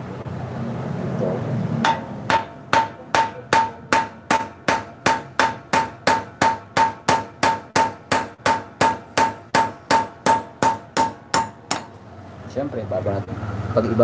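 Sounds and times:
hammer striking metal stud: 0:01.8 - 0:12.0.

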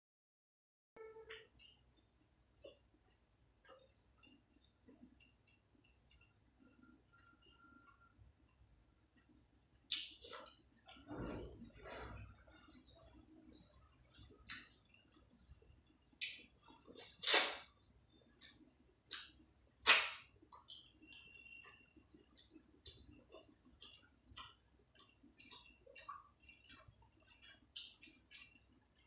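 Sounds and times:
chewing: 0:02.6 - 0:11.1, 0:20.4 - 0:29.0.

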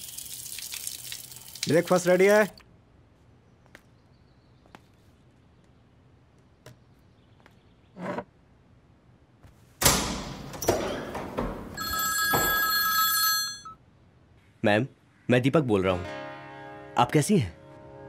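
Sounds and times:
mobile phone ringtone: 0:11.8 - 0:13.8.

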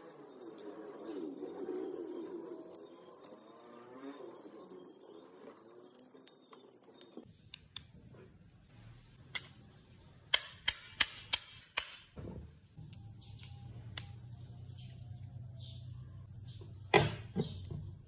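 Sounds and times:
parts clicking when handled: 0:06.2 - 0:08.1, 0:10.3 - 0:12.2.

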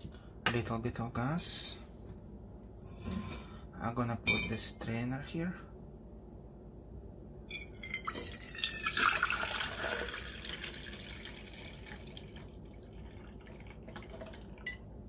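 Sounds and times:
liquid pouring into a steel cup: 0:07.7 - 0:14.9.

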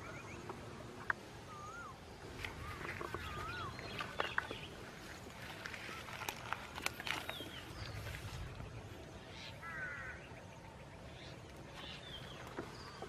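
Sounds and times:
bird chirps: 0:01.4 - 0:06.4.

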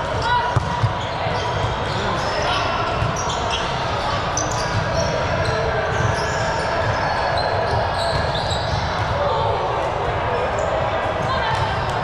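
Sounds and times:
players' voices: 0:00.0 - 0:12.0
ball bouncing and being struck: 0:00.5 - 0:01.0
shoe squeaks: 0:01.0 - 0:08.9.

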